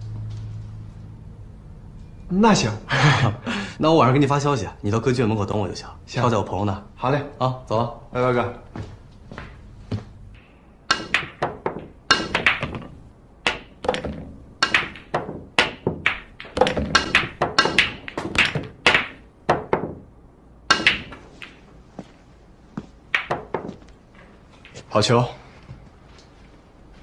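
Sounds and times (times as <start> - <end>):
cue tip striking ball: 10.9 - 20.1, 20.7 - 22.1, 23.1 - 23.8
pool balls clacking: 10.9 - 22.2, 23.0 - 25.1.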